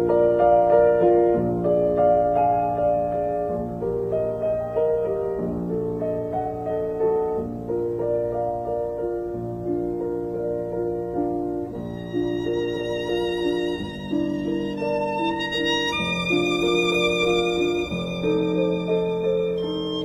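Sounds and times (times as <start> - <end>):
higher melody with vibrato: 11.7 - 20.0.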